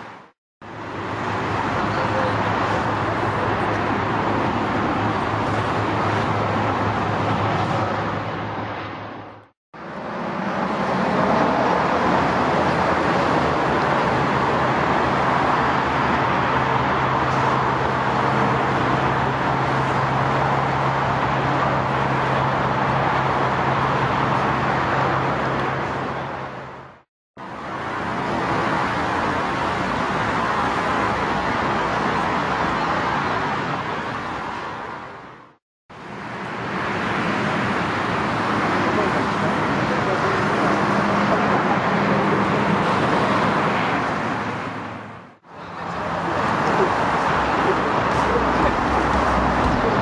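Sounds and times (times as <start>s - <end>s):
jet engines rumbling: 36.1s - 50.0s.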